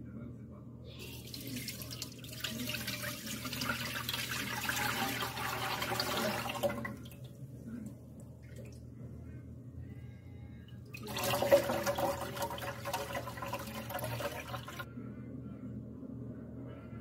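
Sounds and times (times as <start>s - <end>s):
water pouring into container: 1.0s - 7.2s, 11.0s - 14.8s.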